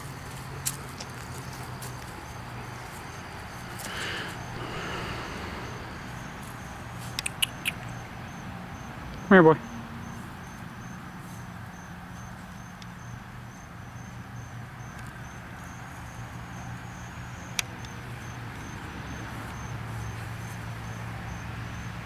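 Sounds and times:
insect chirping: 0.0s - 22.0s
low hum: 4.4s - 7.8s
sharp click: 7.1s - 7.8s.

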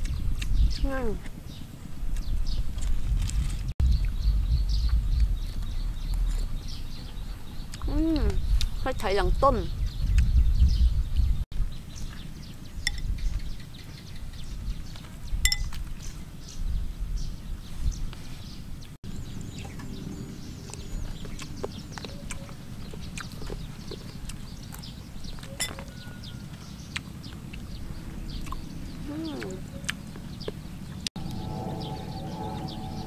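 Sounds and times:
steady low rumble: 0.0s - 25.4s, 26.5s - 33.0s
spoon clicking against bowl: 15.5s - 15.8s
chewing: 20.6s - 31.1s.

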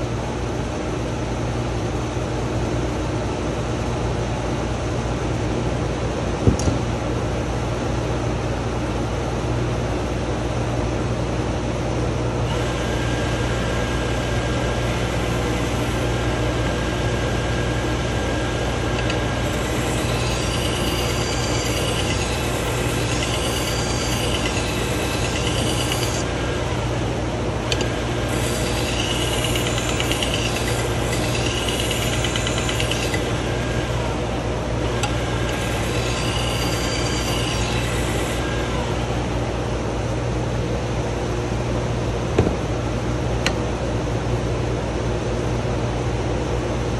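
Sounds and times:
belt sharpener motor hum: 12.5s - 39.5s
knife scraping on abrasive belt: 19.4s - 26.3s, 28.2s - 33.4s, 35.4s - 38.5s.

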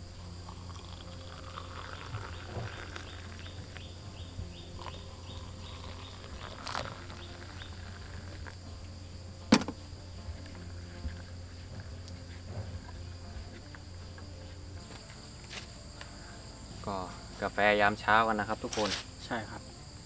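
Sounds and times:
insects buzzing: 0.0s - 20.0s
low steady hum: 0.0s - 20.0s
sharp knock: 9.5s - 9.8s.

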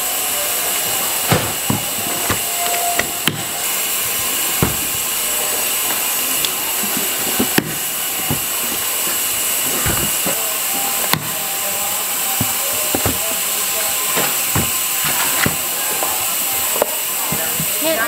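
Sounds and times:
steady hiss: 0.0s - 18.0s
knife chopping coconut: 7.4s - 8.8s, 11.1s - 11.4s, 14.5s - 15.7s.

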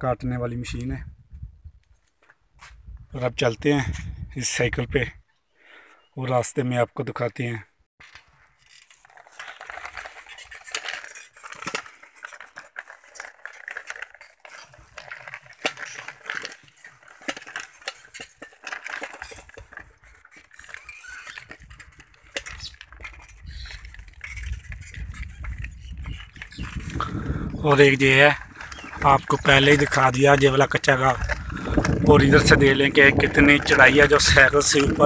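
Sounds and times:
bicycle rattling and clinking: 8.0s - 35.0s.

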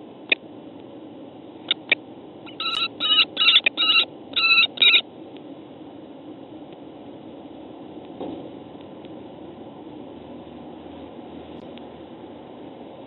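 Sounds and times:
kestrel harsh calls: 2.5s - 5.0s.

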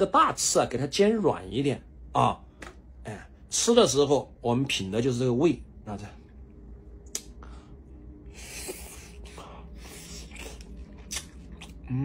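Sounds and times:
low steady hum: 0.0s - 12.0s
man breathing and sniffing: 7.4s - 10.9s.

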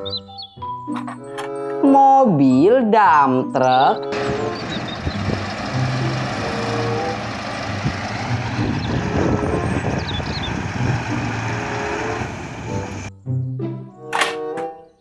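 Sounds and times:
diesel truck engine under load: 4.0s - 13.1s.

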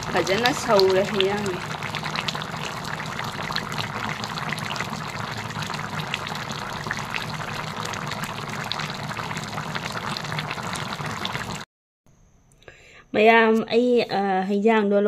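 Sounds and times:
curry bubbling in a wok: 0.0s - 11.6s.

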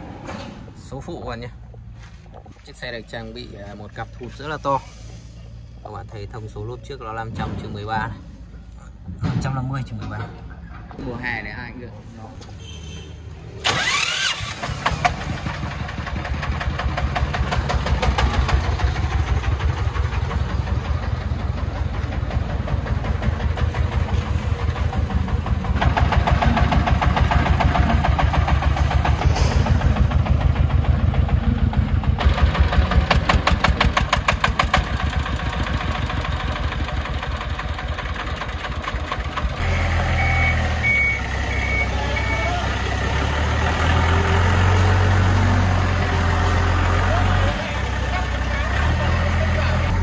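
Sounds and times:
another engine: 13.6s - 50.0s
diesel engine chugging: 13.6s - 50.0s
forklift reversing beep: 39.6s - 42.8s.

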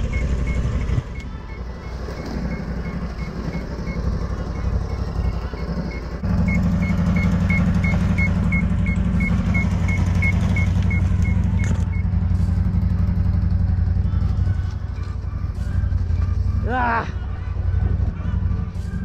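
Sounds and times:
short electronic beeps: 0.0s - 12.2s
snowmobile engine running: 1.7s - 17.1s.

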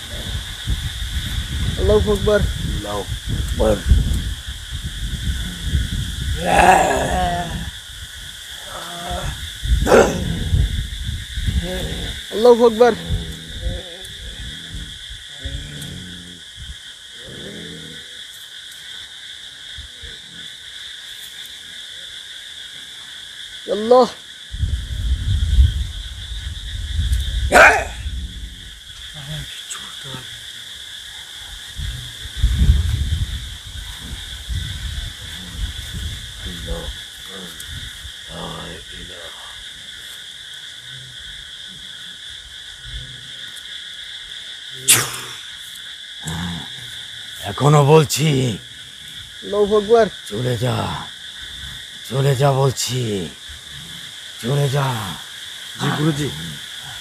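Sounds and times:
low microphone rumbles: 0.0s - 17.5s, 24.5s - 29.2s, 31.4s - 39.0s
night insects chorus: 0.0s - 57.0s
low growls: 5.0s - 7.8s, 8.6s - 18.3s, 27.1s - 30.4s, 31.2s - 39.6s, 40.8s - 43.6s, 46.2s - 49.6s, 50.3s - 57.0s
person's voice: 6.4s - 7.7s, 11.6s - 14.2s, 44.8s - 45.4s, 47.4s - 48.6s, 49.4s - 51.1s, 52.1s - 53.4s, 54.4s - 55.2s, 55.8s - 56.6s.

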